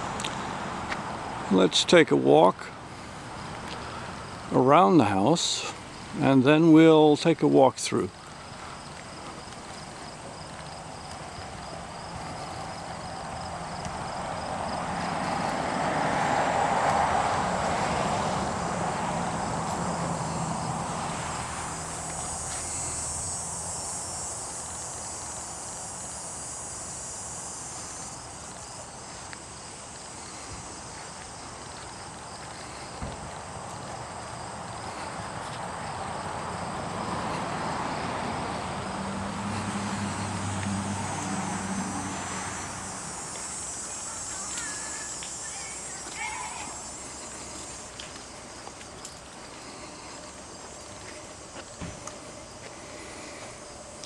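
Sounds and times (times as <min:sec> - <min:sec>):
insects chirping and buzzing: 0:00.0 - 0:54.0
pulsing insect chirp: 0:02.7 - 0:54.0
broad rushing noise: 0:10.8 - 0:54.0.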